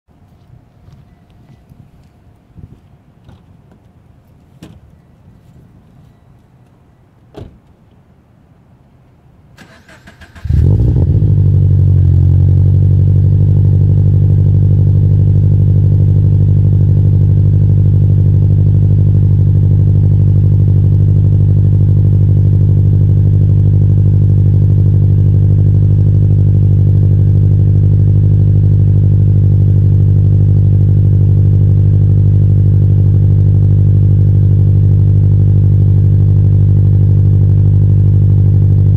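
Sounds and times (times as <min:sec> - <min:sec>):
car engine idling loudly: 0:11.8 - 0:38.9.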